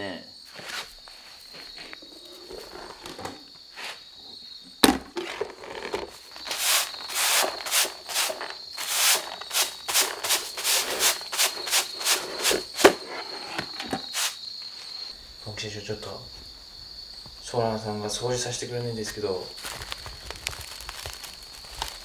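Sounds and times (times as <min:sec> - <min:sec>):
straw broom sweeping: 0:00.5 - 0:04.1, 0:05.2 - 0:14.9.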